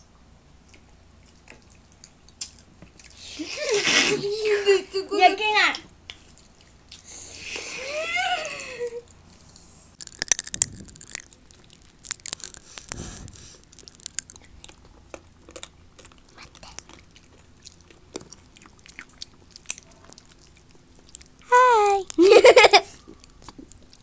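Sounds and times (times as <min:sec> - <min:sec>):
chewing: 0:00.6 - 0:03.2, 0:06.0 - 0:07.2, 0:09.4 - 0:22.2, 0:22.9 - 0:24.0
popping candy crackling: 0:10.0 - 0:24.0.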